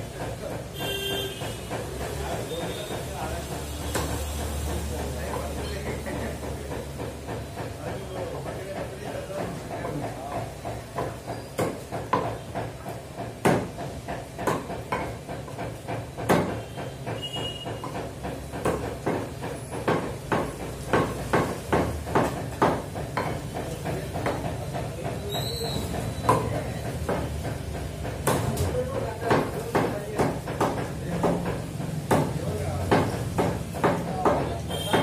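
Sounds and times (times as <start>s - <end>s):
cleaver chopping on wooden block: 9.4s - 24.6s, 25.9s - 35.0s.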